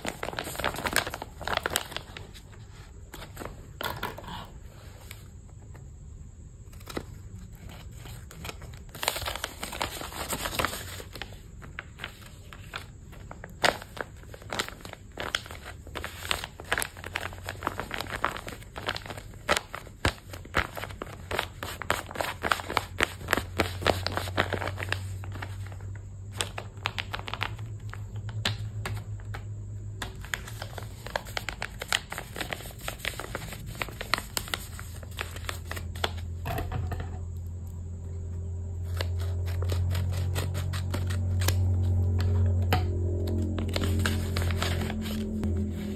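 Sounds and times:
packaging crumpled and torn: 0.0 - 2.4, 6.7 - 28.8, 30.0 - 36.2, 38.8 - 45.9
low hum: 36.6 - 45.9.

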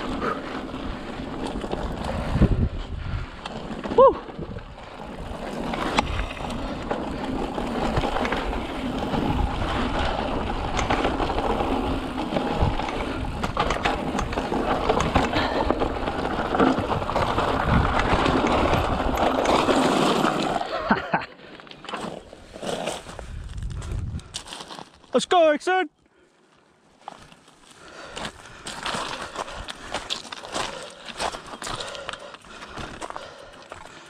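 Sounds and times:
bike rattling over bumps: 0.0 - 25.0, 27.0 - 34.0
bike tyres rumbling over dirt: 0.0 - 25.1, 27.0 - 34.0.

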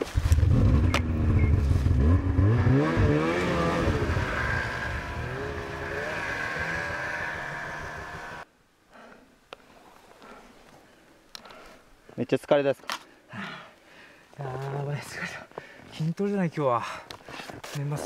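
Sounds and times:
snowmobile engine revving: 0.2 - 8.4.

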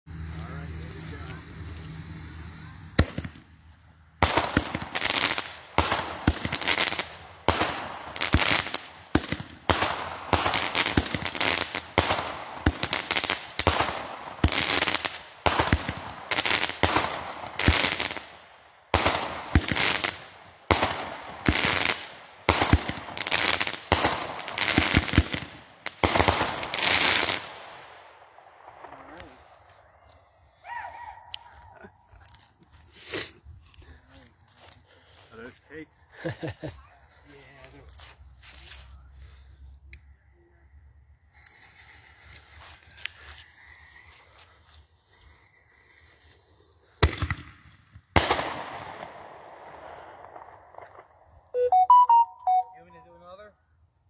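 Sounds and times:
firework reports: 0.1 - 27.8, 28.7 - 30.0
firework shells popping and crackling: 1.3 - 30.3, 41.3 - 52.6.

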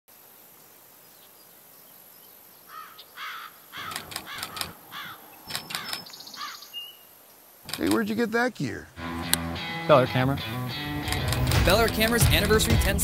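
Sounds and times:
crows cawing: 2.7 - 6.9
camera shutter clicks: 3.8 - 4.8, 5.5 - 6.2, 11.0 - 12.2.

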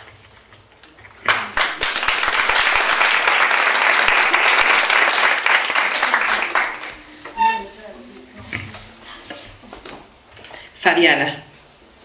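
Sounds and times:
people applauding: 1.2 - 7.1.

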